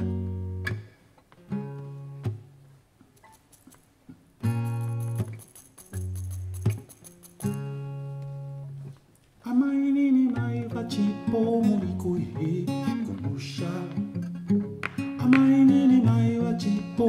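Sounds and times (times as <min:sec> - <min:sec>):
acoustic guitar playing: 0:00.0 - 0:17.0
man singing: 0:09.4 - 0:14.2, 0:15.1 - 0:17.0.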